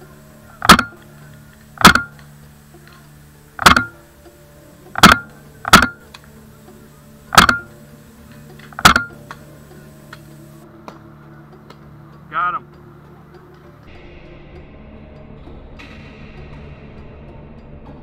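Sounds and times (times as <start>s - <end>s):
paintball marker shots: 0.6s - 1.0s, 1.8s - 2.3s, 3.6s - 4.0s, 5.0s - 6.1s, 7.3s - 7.7s, 8.7s - 9.2s.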